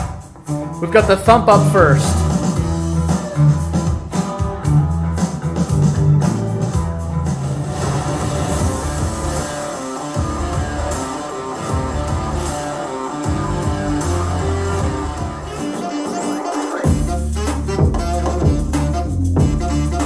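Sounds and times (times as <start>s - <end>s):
rock music through a speaker: 0.0s - 20.0s
deep bass: 0.6s - 4.0s, 4.6s - 9.5s, 11.7s - 12.6s, 13.3s - 15.5s, 16.9s - 20.0s.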